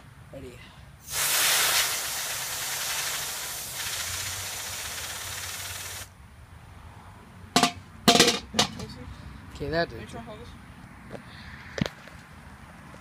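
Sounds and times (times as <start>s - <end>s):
aerosol spray hissing: 1.0s - 6.1s.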